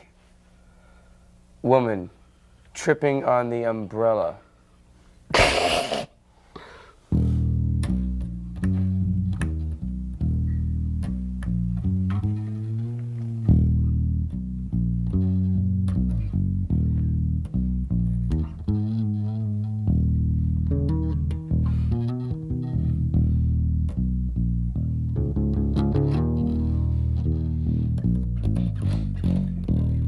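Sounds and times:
electric bass guitar solo: 0:07.1 - 0:30.0.

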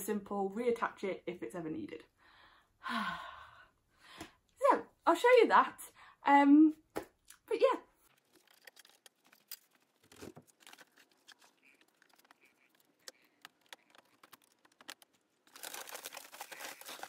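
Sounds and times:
faint clicks and crinkles: 0:08.0 - 0:17.0
plastic liner crinkling and rustling: 0:08.0 - 0:17.0.

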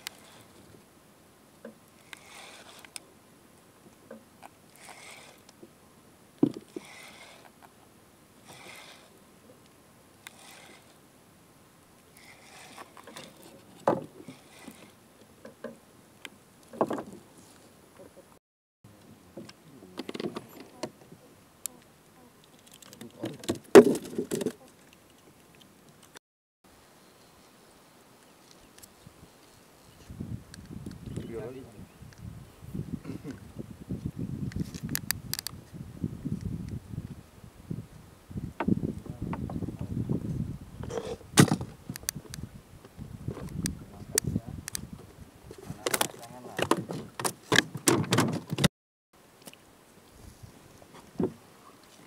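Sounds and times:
water lapping against boat hull: 0:12.1 - 0:15.8.

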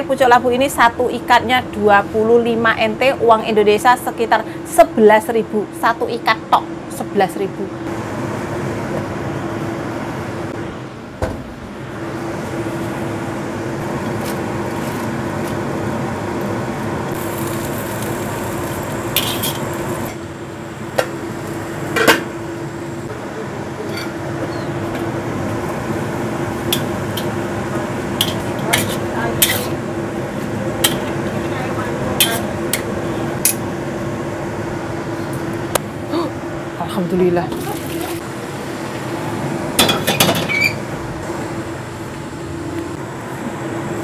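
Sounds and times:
steady hum: 0:00.0 - 0:44.0
wire skimmer scraping metal wok: 0:17.2 - 0:20.1.

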